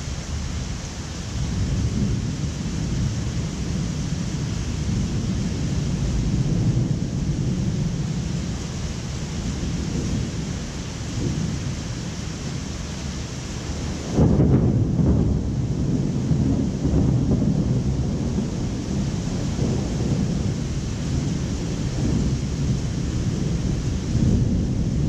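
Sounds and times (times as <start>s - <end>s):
rain hiss: 0.0s - 25.0s
thunder rumbling: 1.3s - 25.0s.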